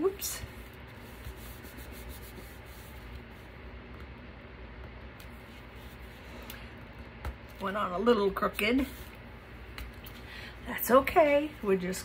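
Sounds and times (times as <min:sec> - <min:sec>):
hands rubbing paper: 0:00.5 - 0:03.5.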